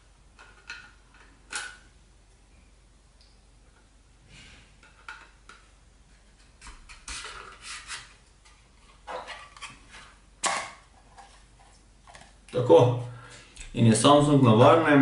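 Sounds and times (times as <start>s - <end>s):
plastic clicks and rattles: 0.4s - 1.8s, 4.8s - 5.7s.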